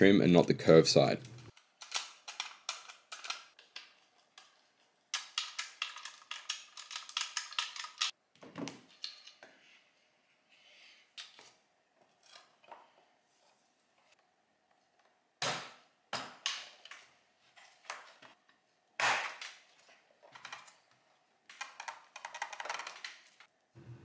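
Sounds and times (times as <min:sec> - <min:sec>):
plastic parts knocking and clicking: 0:01.5 - 0:04.6, 0:21.5 - 0:23.4.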